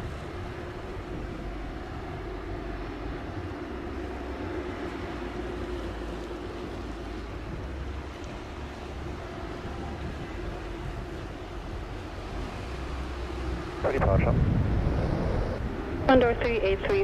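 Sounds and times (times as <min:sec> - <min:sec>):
jet engines idling: 0:00.0 - 0:17.0.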